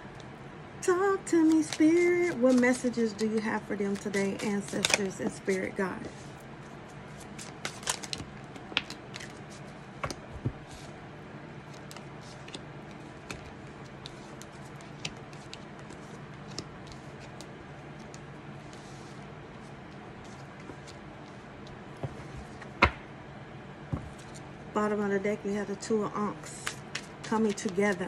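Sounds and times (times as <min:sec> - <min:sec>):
cards being shuffled and laid out: 0:01.4 - 0:06.2, 0:07.1 - 0:10.9, 0:11.6 - 0:23.1, 0:23.9 - 0:24.5, 0:26.6 - 0:28.0.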